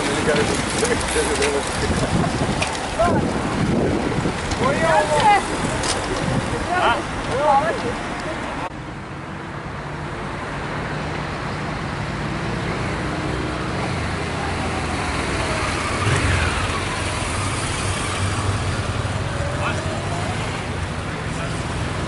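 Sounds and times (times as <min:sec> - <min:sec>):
motorcycle engine passing: 0:14.6 - 0:20.7.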